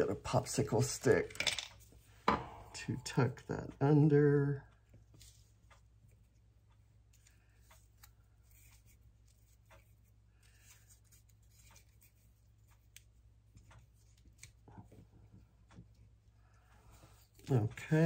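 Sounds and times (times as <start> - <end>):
paper rustling and ticking: 5.0 - 15.0.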